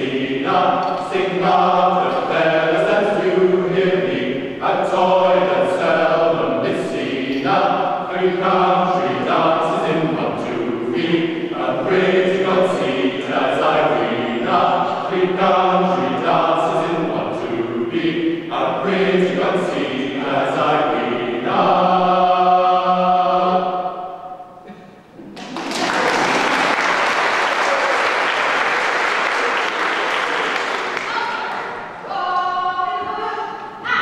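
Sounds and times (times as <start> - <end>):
choir singing unaccompanied: 0.0 - 24.6.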